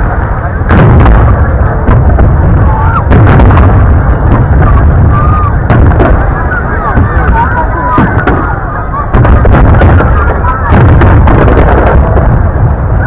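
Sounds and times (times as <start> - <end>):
fireworks bursting: 0.0 - 13.0
low rumble of booms: 0.0 - 13.0.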